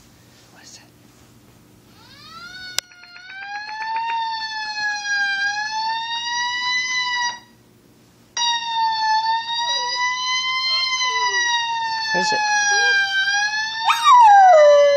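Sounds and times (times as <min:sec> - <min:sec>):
fire truck siren wailing: 0:02.0 - 0:07.5, 0:08.4 - 0:14.9.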